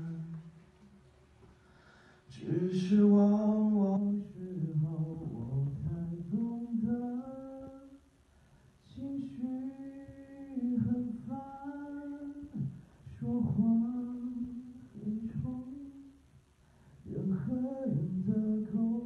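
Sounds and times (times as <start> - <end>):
man singing unaccompanied: 0.0 - 0.6, 2.3 - 8.1, 8.8 - 16.2, 17.0 - 19.0.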